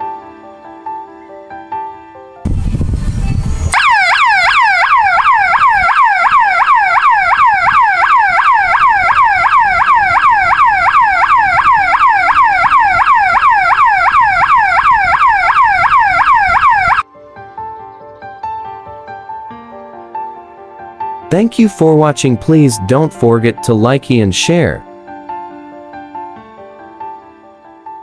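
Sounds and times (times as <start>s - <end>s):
alarm siren yelping: 3.7s - 17.0s.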